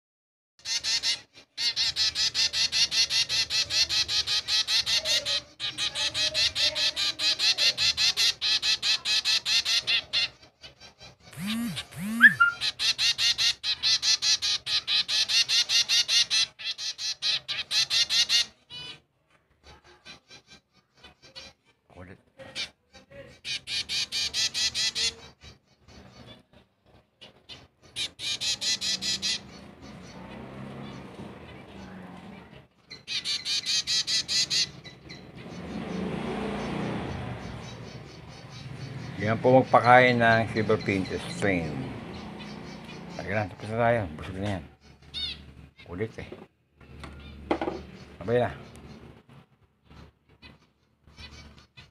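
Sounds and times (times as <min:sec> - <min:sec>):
fledgling begging calls: 0:00.6 - 0:19.0, 0:22.6 - 0:26.5, 0:27.2 - 0:46.1, 0:49.8 - 0:51.9.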